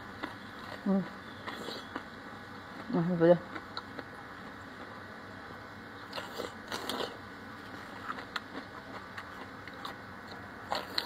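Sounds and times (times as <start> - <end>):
soft wet chewing: 0.1 - 11.0
crunching cucumber: 6.0 - 11.0.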